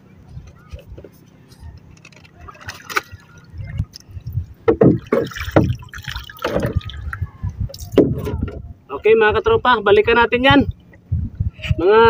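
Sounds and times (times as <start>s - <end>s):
water splashing against a hull: 0.6s - 8.7s.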